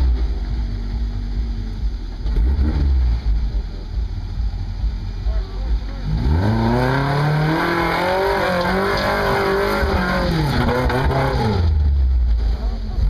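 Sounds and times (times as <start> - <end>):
truck engine revving hard: 2.2 - 3.6, 5.4 - 12.0.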